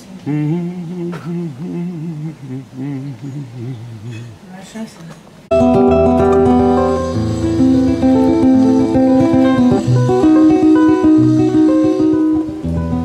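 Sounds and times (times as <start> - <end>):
classical guitar fingerstyle: 5.5 - 13.0.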